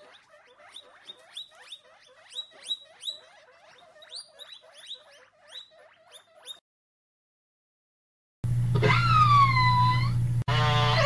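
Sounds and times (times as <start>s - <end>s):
guinea pigs squeaking: 0.0s - 6.6s.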